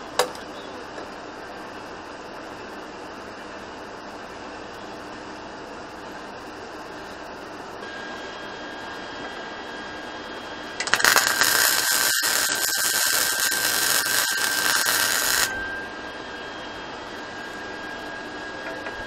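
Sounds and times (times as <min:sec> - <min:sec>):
faint high whine: 0:00.0 - 0:19.0
welding arc crackling sizzle: 0:07.8 - 0:15.7.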